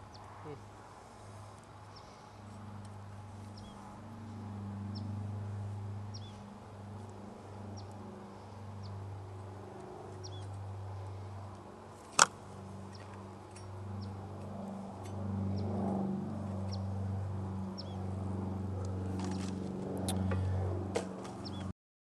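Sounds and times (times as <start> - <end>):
steady low hum: 0.0 - 21.7
bird chirping: 3.5 - 3.9, 6.1 - 6.4, 10.2 - 10.5, 17.8 - 18.0, 21.4 - 21.7.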